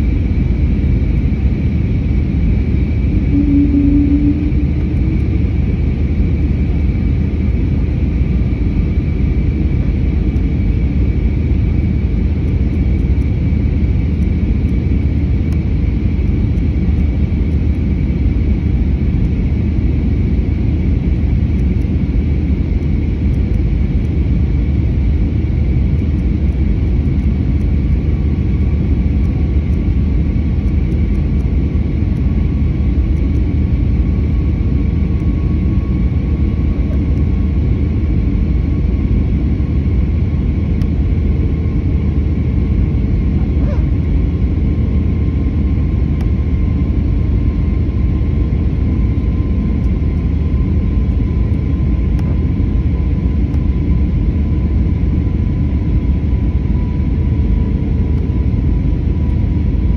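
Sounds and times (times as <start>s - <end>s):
faint steady whine: 0.0s - 59.9s
jet engine and airflow rumble: 0.0s - 59.9s.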